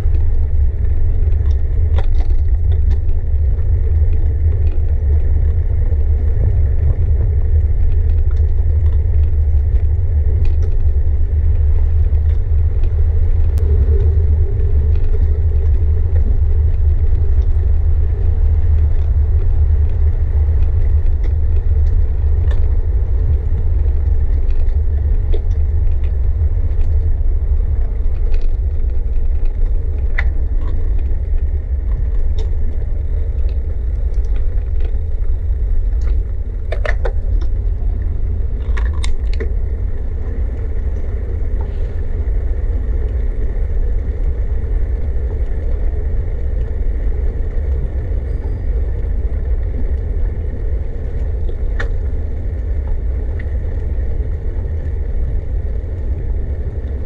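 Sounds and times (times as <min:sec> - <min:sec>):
bicycle clicks and rattles: 0:00.0 - 0:41.8
bicycle road vibration rumble: 0:00.0 - 0:57.0
wind on microphone: 0:00.0 - 0:57.0.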